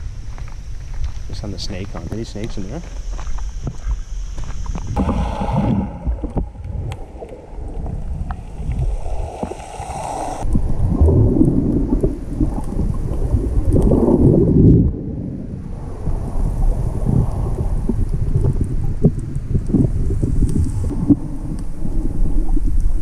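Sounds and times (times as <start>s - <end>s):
muffled underwater rushing: 4.8s - 18.8s.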